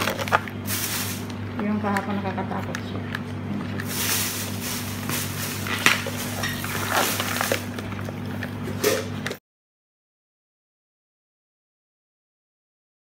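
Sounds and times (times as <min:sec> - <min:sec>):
crab shells scraping and clacking: 0:00.0 - 0:02.0, 0:02.6 - 0:09.4
steady low hum: 0:00.0 - 0:09.4.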